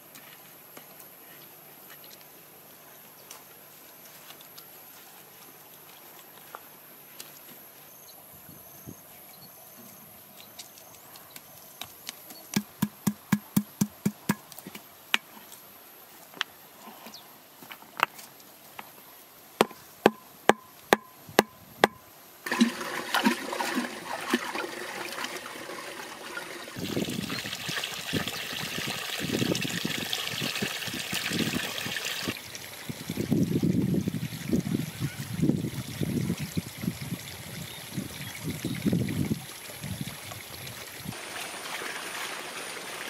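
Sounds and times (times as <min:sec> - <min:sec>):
water pouring into a pool: 0:22.4 - 0:43.0.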